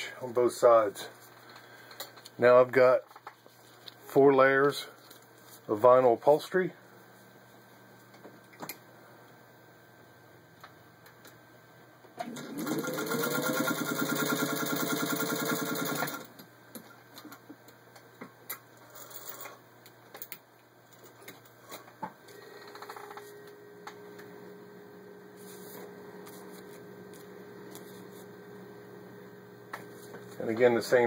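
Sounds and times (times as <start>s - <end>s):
faint steady hum: 0.0s - 31.0s
sewing machine stitching: 12.2s - 16.3s.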